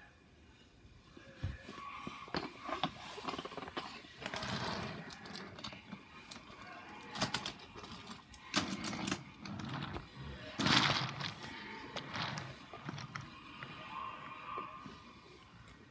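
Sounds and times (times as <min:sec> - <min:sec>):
wooden toy trains rattling on track: 0:02.3 - 0:13.8.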